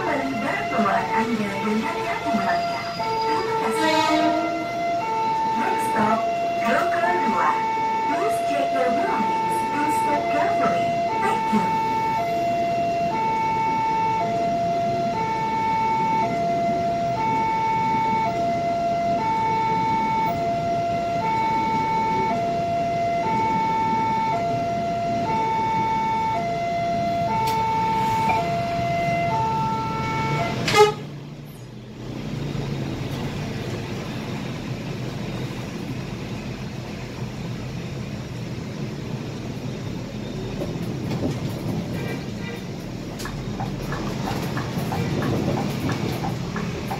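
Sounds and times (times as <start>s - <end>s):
two-tone crossing alarm: 0.0s - 31.1s
bus engine running: 0.0s - 46.9s.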